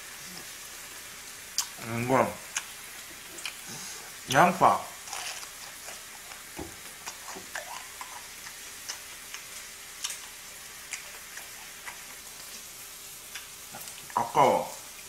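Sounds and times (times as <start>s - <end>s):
meat sizzling in a frying pan: 0.0s - 15.0s
chewing: 1.6s - 1.8s, 2.4s - 4.2s, 5.0s - 14.3s.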